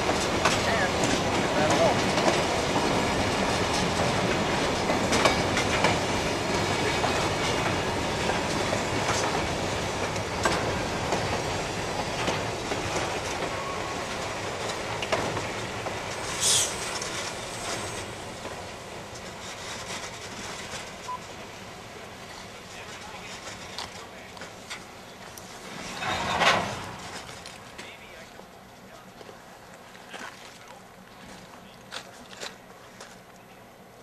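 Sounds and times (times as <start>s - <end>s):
train wheels clacking over rail joints: 0.0s - 28.5s
high hiss: 16.1s - 18.2s.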